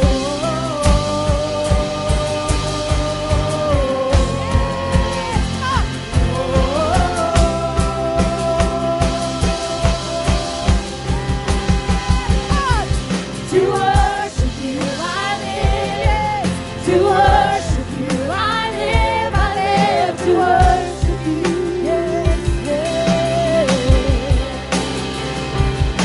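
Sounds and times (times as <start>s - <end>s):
drum beat: 0.0s - 25.0s
people singing: 0.0s - 25.0s
worship band playing: 0.0s - 26.0s.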